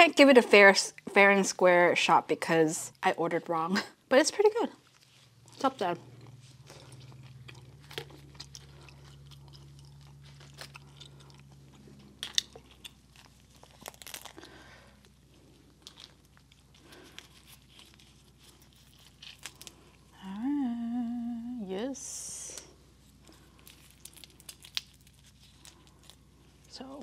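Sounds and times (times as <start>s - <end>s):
crawfish shell cracking: 6.6s - 20.1s, 23.1s - 26.8s.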